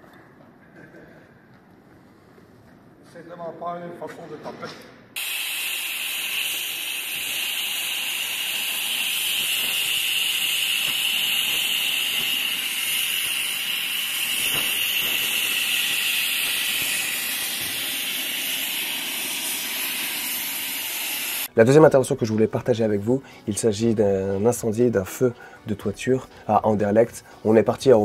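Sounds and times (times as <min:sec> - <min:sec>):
compressed air hissing: 0:05.2 - 0:21.5.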